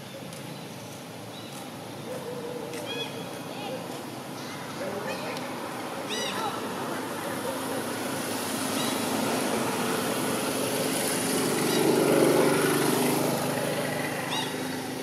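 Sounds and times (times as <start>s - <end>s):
vehicle engine passing: 4.1s - 15.0s.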